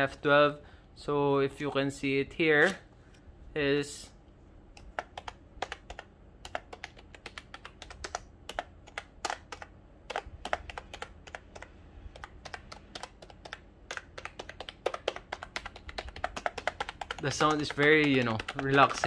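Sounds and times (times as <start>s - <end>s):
keyboard typing: 4.7s - 19.0s.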